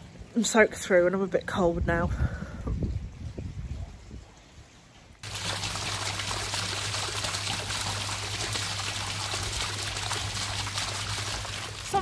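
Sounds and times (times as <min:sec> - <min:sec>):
rainwater splashing into puddle: 0:05.2 - 0:12.0.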